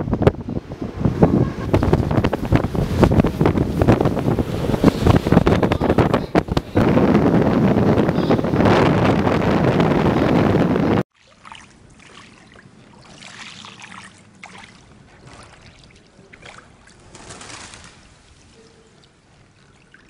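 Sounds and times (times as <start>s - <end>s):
water lapping and sloshing: 0.0s - 7.2s, 11.0s - 20.0s
wind buffeting microphone: 0.0s - 11.1s.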